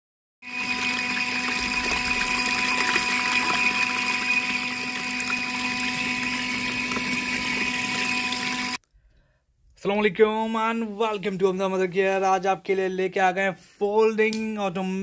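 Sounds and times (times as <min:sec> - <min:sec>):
small motor humming: 0:00.5 - 0:08.8
water churning and splashing: 0:00.8 - 0:08.8.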